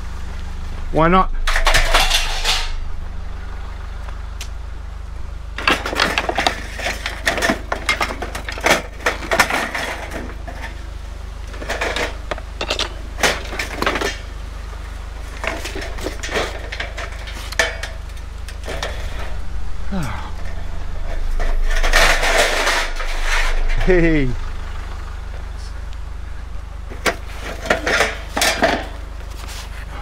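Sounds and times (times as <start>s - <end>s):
steady low rumble: 0.0s - 30.0s
scrap metal clanking and rattling: 1.4s - 2.8s, 5.6s - 19.5s, 20.4s - 24.2s, 26.9s - 30.0s.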